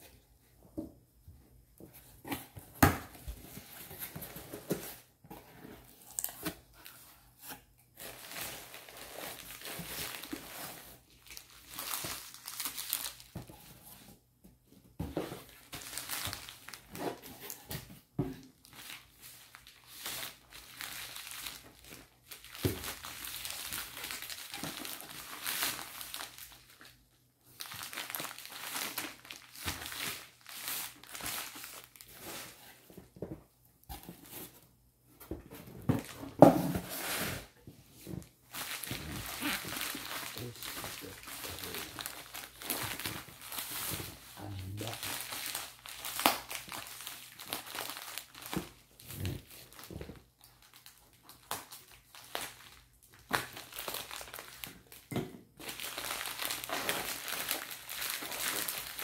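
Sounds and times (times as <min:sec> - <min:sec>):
plastic wrapping crinkling: 0:08.0 - 0:13.4, 0:15.4 - 0:16.9, 0:18.6 - 0:26.9, 0:27.6 - 0:32.5, 0:38.5 - 0:59.0.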